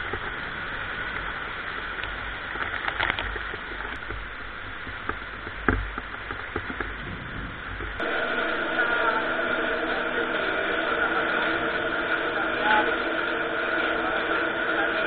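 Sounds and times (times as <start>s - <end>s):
hailstones ticking: 0.0s - 7.2s
wind rumbling on microphone: 0.0s - 8.0s
heavy rain downpour hiss: 0.0s - 15.0s.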